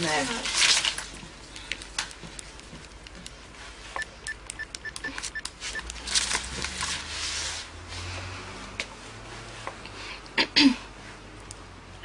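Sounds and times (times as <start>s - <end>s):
phone rustling: 0.6s - 7.1s
phone keypad beeps: 4.0s - 5.9s.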